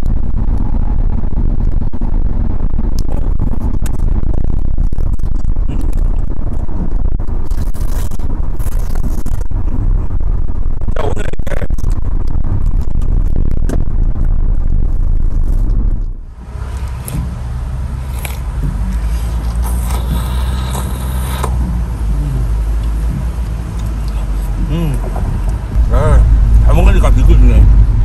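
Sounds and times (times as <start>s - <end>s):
car road and wind noise: 0.0s - 28.0s
engine hum: 0.0s - 28.0s
slurping and eating noises: 17.9s - 24.7s.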